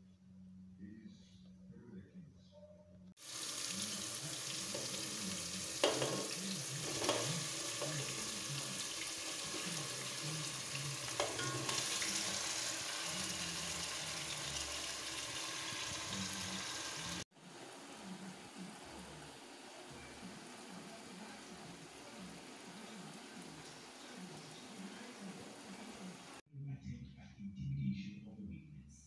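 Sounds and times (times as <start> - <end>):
chicken sizzling in a pot: 3.2 - 26.4
utensil clinking against pot: 5.8 - 8.2, 11.2 - 12.1.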